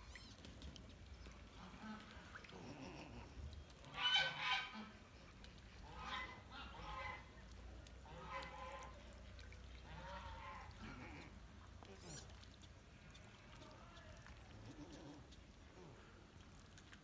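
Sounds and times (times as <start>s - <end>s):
waterfowl honking: 3.9s - 5.0s, 5.9s - 7.3s.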